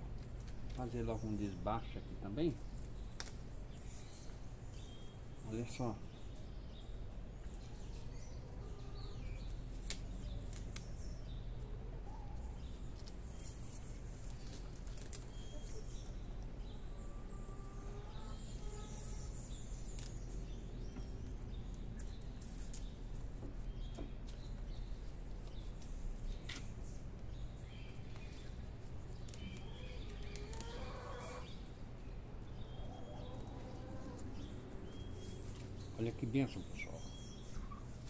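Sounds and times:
small birds chirping: 0.0s - 38.0s
onion stalks pulled apart: 9.7s - 10.9s.

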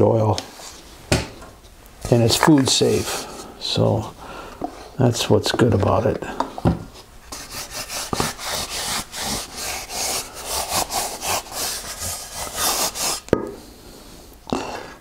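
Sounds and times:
hand rubbing wooden plate: 6.9s - 13.3s.

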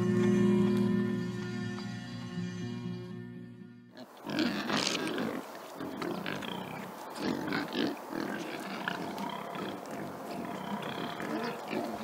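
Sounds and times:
pigs grunting: 4.0s - 12.0s.

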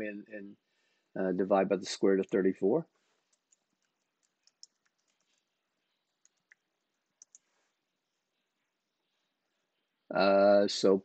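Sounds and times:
keyboard keys clicking: 3.3s - 5.4s, 7.2s - 7.4s.

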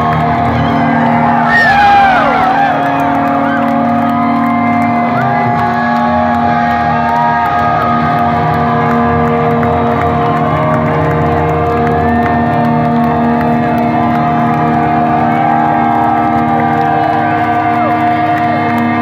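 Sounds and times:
crowd cheering and whooping: 0.0s - 19.0s
electric guitar chord ringing: 1.2s - 12.2s.

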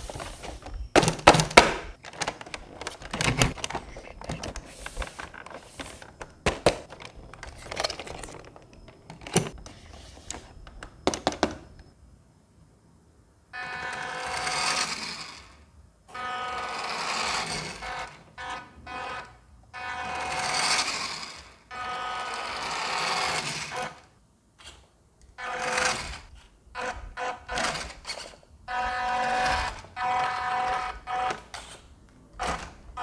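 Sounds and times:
small electric motor whining: 13.6s - 24.8s, 25.4s - 33.0s.

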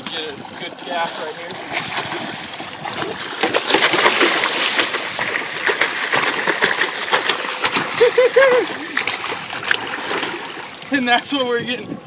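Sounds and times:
fish thrashing and splashing water: 0.0s - 11.3s.

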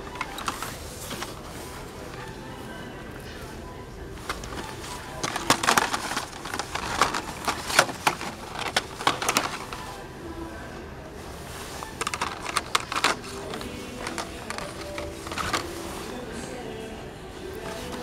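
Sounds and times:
rapid sharp clicks and clatters: 4.3s - 9.8s, 11.8s - 15.8s.

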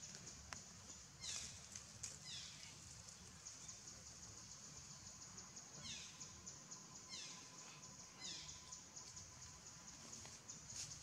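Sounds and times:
insect chorus: 0.0s - 11.0s.

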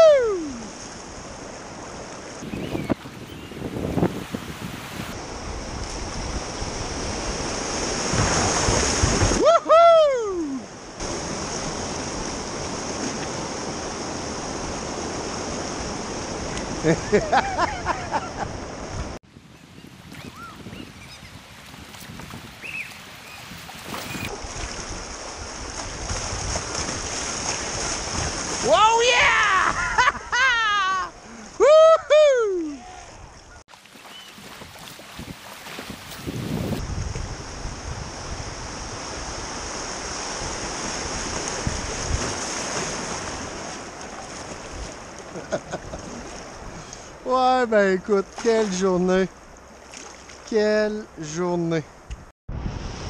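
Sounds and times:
river water rushing: 0.0s - 19.2s, 21.4s - 29.7s, 38.5s - 47.4s.

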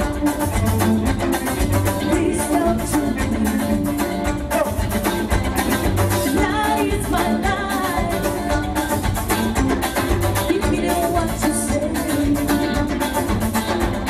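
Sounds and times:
latin band music: 0.0s - 14.0s.

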